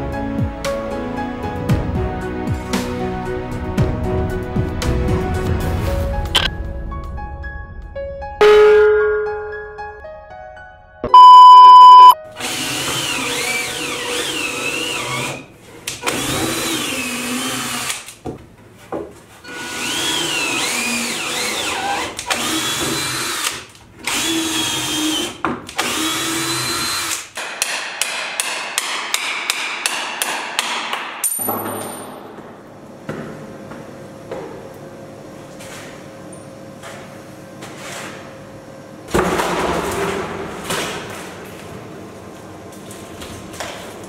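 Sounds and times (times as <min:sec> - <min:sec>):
loud steady beep: 0:08.4 - 0:09.6, 0:11.1 - 0:12.2
cordless drill driving screws: 0:12.4 - 0:15.4, 0:19.5 - 0:27.3.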